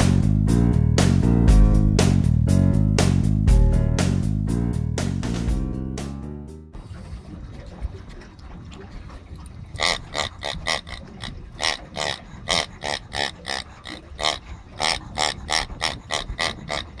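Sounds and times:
squeaky toy oinks: 9.8 - 17.0.

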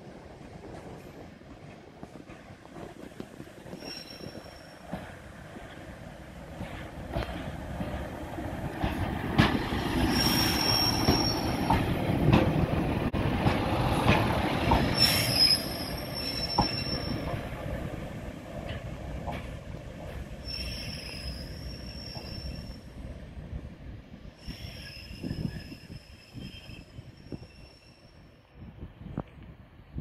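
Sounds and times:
train rumble: 0.0 - 30.0
train wheels squealing: 3.7 - 5.0, 9.9 - 11.8, 14.8 - 17.4, 20.4 - 23.0, 24.4 - 28.6
clicks from rail joints: 13.4 - 14.9.

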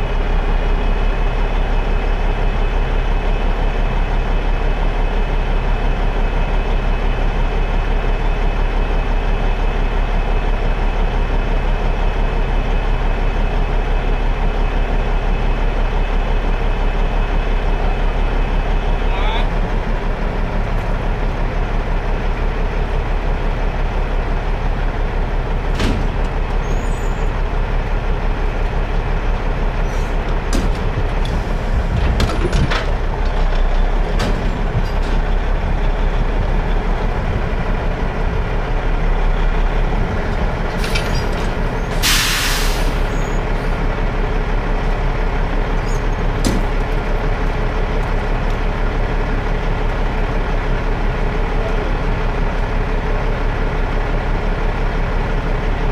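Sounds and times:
diesel engine running: 0.0 - 55.9
air hiss: 42.0 - 43.1.

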